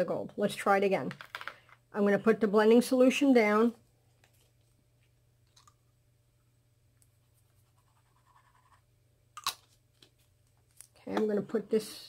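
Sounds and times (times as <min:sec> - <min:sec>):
faint scratching on paper: 0:07.1 - 0:08.9.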